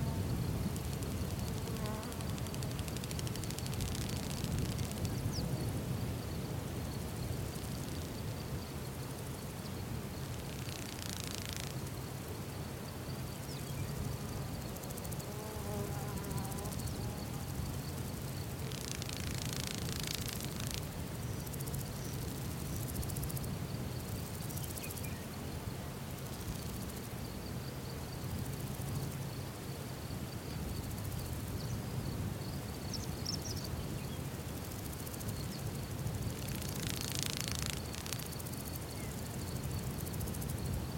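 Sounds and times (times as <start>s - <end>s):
insect trilling: 0.7s - 5.4s, 10.2s - 12.0s, 14.7s - 23.3s, 34.6s - 40.7s.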